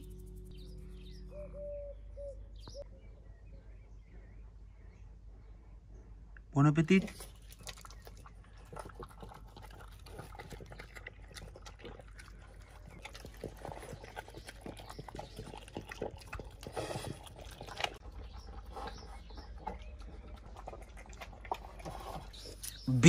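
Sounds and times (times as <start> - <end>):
dog chewing wetly: 7.0 - 22.9
dog lip-smacking and licking: 7.1 - 18.0.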